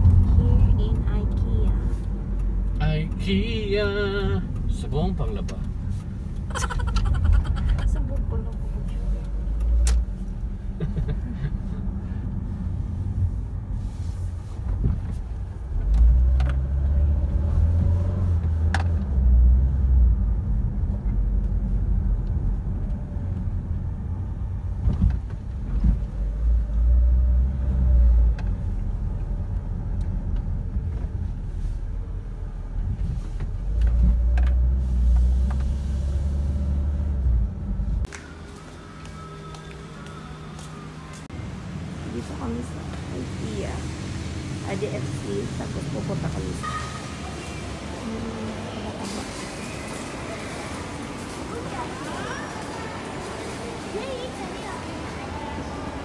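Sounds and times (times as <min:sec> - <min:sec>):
car engine and road rumble: 0:00.0 - 0:56.0.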